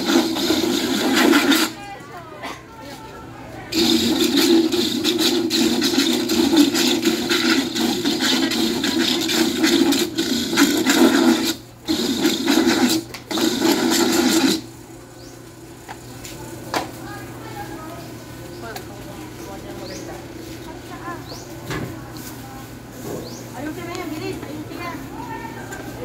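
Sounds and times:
rasping scraping noise: 0.0 - 1.8, 3.7 - 14.7
electric grater motor hum: 3.8 - 14.7.

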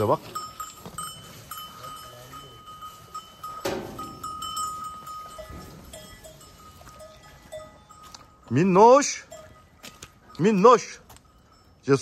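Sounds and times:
cattle eating: 0.0 - 8.4
high ringing tone: 0.0 - 12.0.

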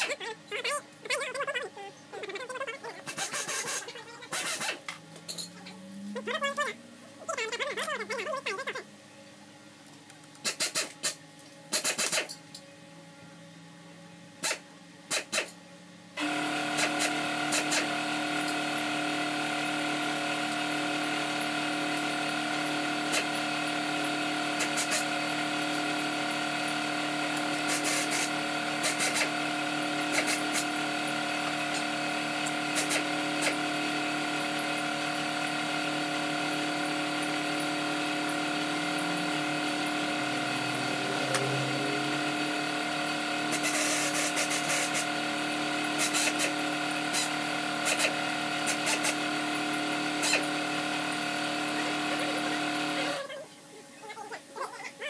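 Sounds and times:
steady machine hum: 0.0 - 55.0.

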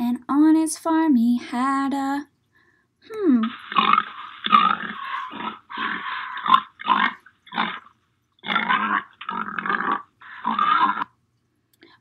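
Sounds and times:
pig grunting and oinking: 3.3 - 11.2.

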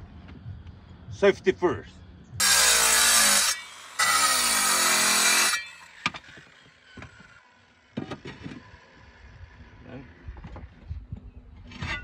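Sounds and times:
angle grinder cutting tile: 2.4 - 7.3.

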